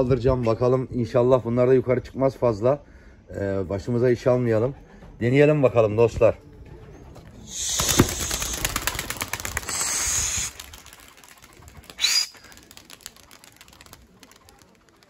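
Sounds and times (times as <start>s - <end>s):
pigeon wings flapping: 7.4s - 15.0s.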